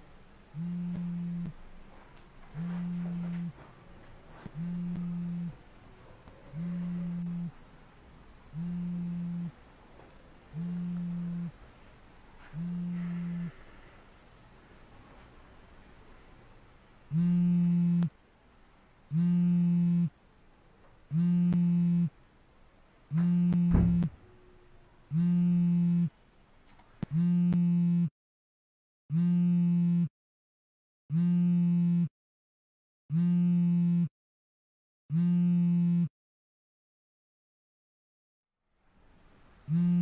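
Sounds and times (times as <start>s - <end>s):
electronic alarm beeping: 23.1s - 24.2s
dull thump: 23.6s - 24.2s.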